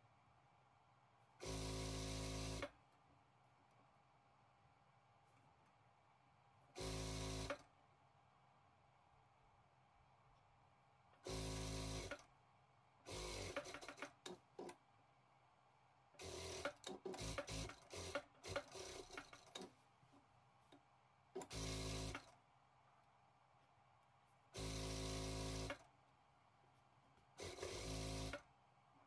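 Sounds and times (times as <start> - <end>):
sewing machine stitching: 1.4 - 2.8, 6.8 - 7.7, 11.2 - 12.3, 13.1 - 14.8, 16.2 - 19.7, 21.4 - 22.4, 24.6 - 25.9, 27.4 - 28.5.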